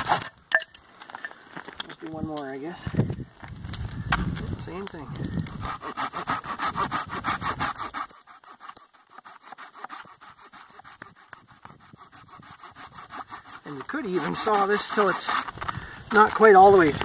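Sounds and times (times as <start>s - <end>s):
hand saw cutting branch: 0.0s - 0.4s, 5.5s - 16.3s.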